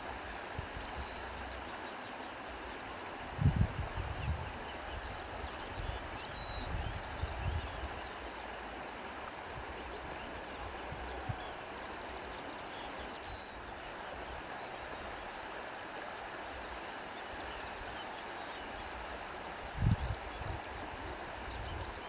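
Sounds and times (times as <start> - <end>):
wind buffeting microphone: 3.3 - 8.0, 19.7 - 22.0.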